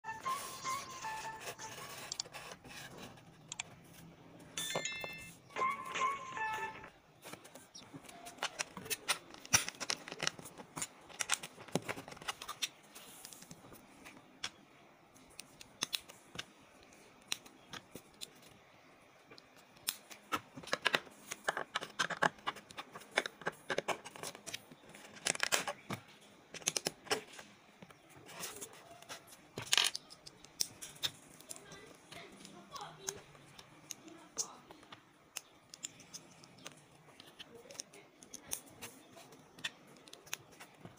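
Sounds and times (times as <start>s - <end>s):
plastic bricks clicking together: 20.6s - 25.8s, 29.6s - 31.8s, 35.3s - 38.8s.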